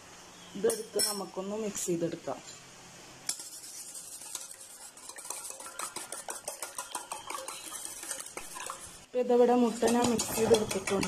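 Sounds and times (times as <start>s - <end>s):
utensil clinking metal bowl: 0.7s - 1.2s, 4.2s - 9.0s, 9.6s - 11.0s
eggs sloshing: 4.0s - 11.0s.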